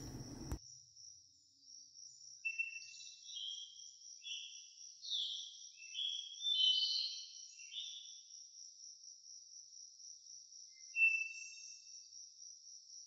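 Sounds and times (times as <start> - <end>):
crickets chirring: 0.0 - 5.0.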